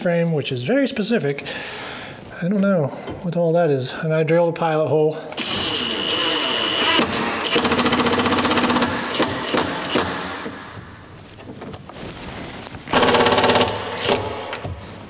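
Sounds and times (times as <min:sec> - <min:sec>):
impact driver hammering: 0:06.4 - 0:10.8, 0:12.9 - 0:14.8.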